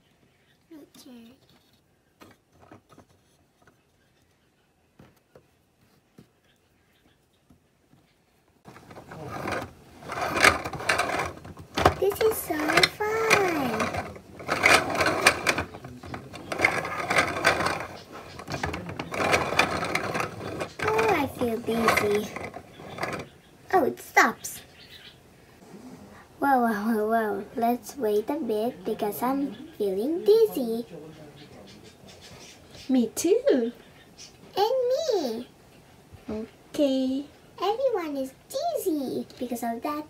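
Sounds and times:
toy motor and gears whirring: 8.7 - 23.3
toy carousel music: 8.8 - 23.3.

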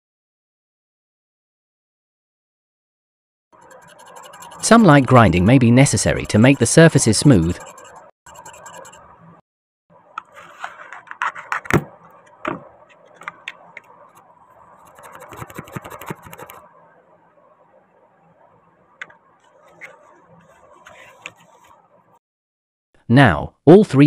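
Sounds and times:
rough plastic scraping: 14.8 - 16.6.

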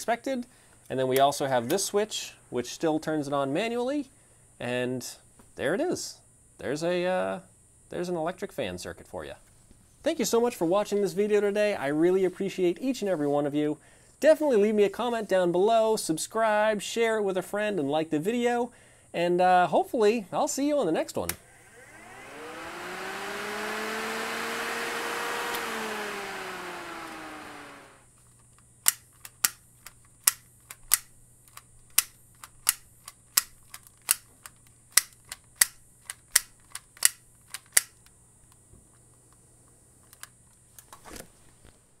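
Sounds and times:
electric fan hum: 21.1 - 28.1
sharp clicks: 28.8 - 38.2.

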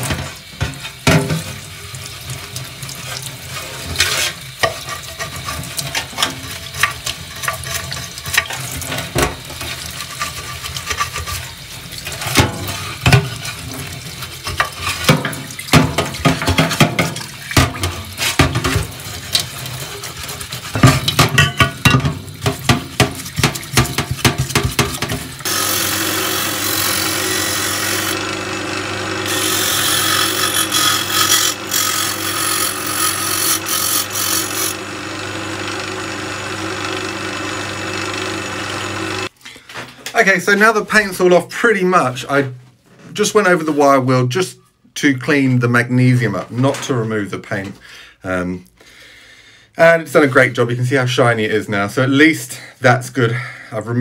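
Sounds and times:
tap water running into sink: 0.0 - 26.4
metal part knocking against sink: 20.8 - 25.2
drill press spinning wire wheel: 25.4 - 39.3.

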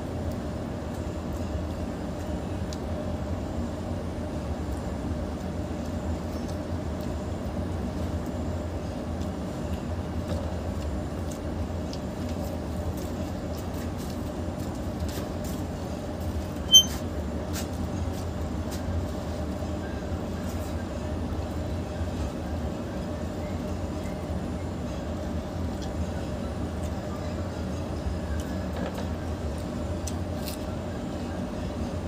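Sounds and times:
high-pitched beep: 16.7 - 17.0.

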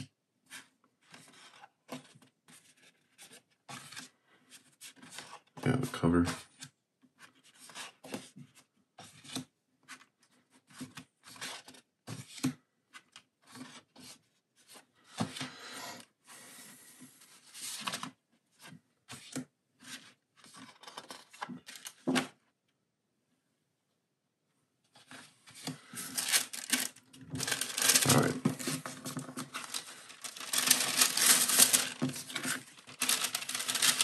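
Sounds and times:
paper rustling and sliding: 25.0 - 34.0
paper rubbing over paper: 25.9 - 34.0.

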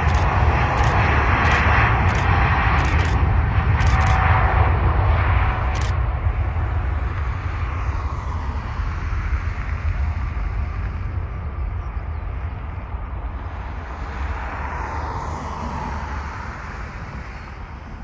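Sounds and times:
camera shutter click: 0.0 - 3.2, 3.8 - 4.2, 5.7 - 6.0
low rumble: 0.0 - 13.4
jet airliner engine: 0.0 - 18.0.

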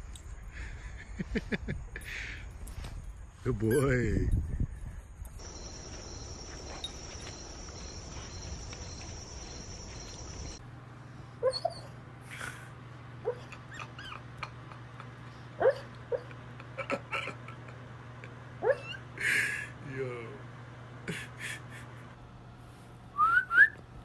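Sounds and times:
high insect drone: 0.4 - 10.6
dog whimpering and yipping: 11.4 - 12.0, 13.2 - 14.5, 15.6 - 16.3, 18.6 - 19.1.

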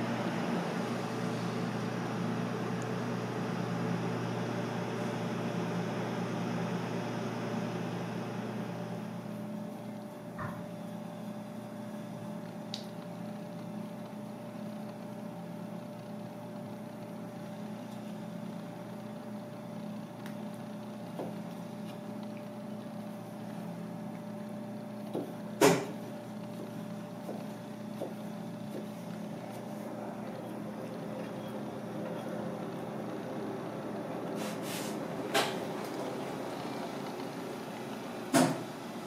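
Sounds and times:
low machine hum: 0.0 - 39.0.

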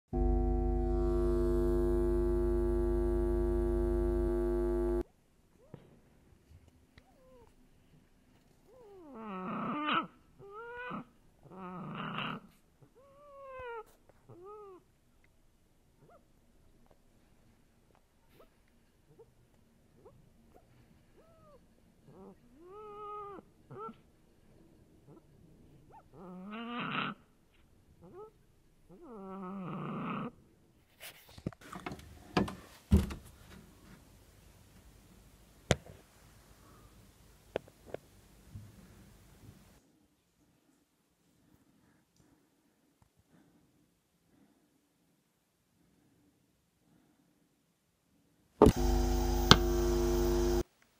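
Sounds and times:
low pitched drone: 0.1 - 5.0
animal-like cries: 21.2 - 24.0, 25.9 - 27.2
knocks and thumps: 31.8 - 33.3.

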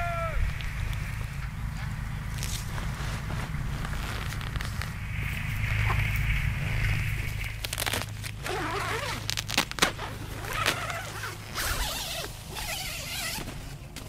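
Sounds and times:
low steady hum: 0.0 - 14.0
nylon fabric rustling: 1.4 - 14.0
tent zipper rasping: 2.3 - 5.0, 6.6 - 13.8.

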